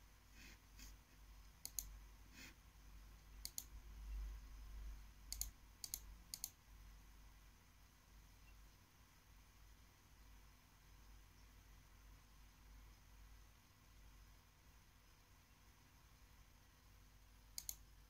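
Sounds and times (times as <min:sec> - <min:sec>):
faint low hum: 0:00.0 - 0:18.0
laptop clicks: 0:17.6 - 0:17.8.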